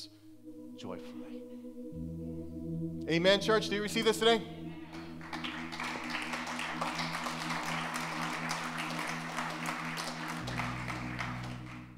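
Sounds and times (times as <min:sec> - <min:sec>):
held musical chord: 0:00.0 - 0:11.9
congregation applauding: 0:04.9 - 0:11.9.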